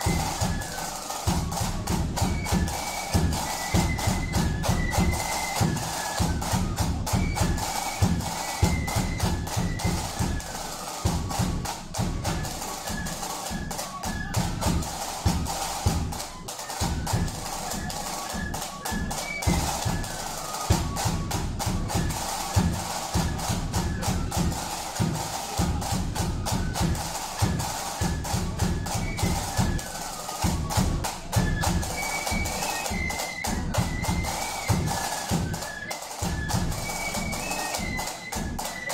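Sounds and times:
flutes playing a march tune: 0:00.0 - 0:38.9
rapid side drum strokes: 0:00.0 - 0:38.9.

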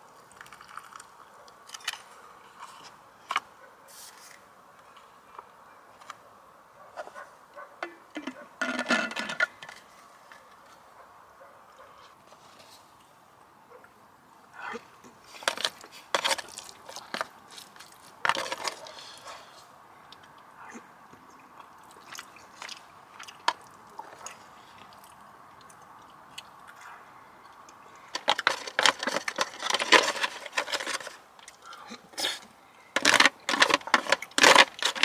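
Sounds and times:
food crunching: 0:00.0 - 0:02.7, 0:15.3 - 0:19.3, 0:21.4 - 0:35.0.

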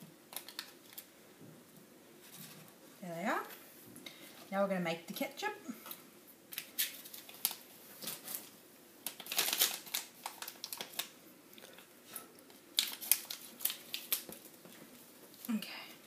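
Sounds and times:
foil packet crinkling: 0:00.3 - 0:01.1, 0:05.9 - 0:15.5.

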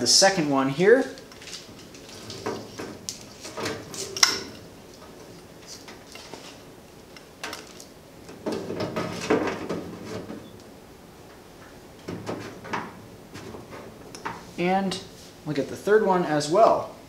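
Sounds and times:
rubbing and tapping on metal door: 0:01.3 - 0:06.6, 0:08.3 - 0:10.5, 0:11.6 - 0:14.5.

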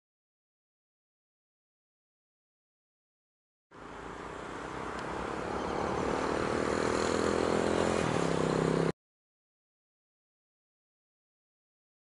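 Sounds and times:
engine running: 0:03.7 - 0:08.9.

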